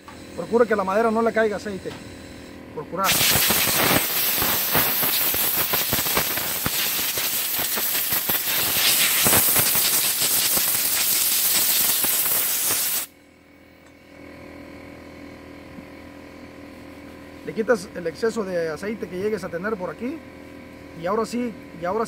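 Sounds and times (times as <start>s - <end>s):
compressed air hissing: 3.0s - 13.1s.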